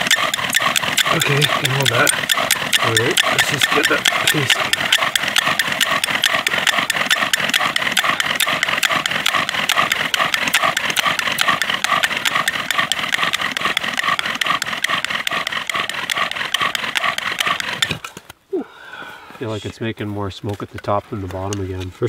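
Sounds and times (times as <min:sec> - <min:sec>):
bow drill squeaking and grinding: 0:00.0 - 0:18.3.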